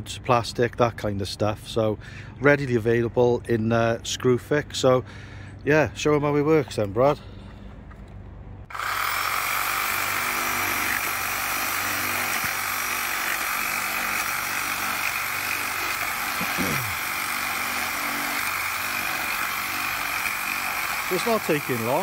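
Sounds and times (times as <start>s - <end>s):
reciprocating saw cutting plastic: 8.7s - 22.0s.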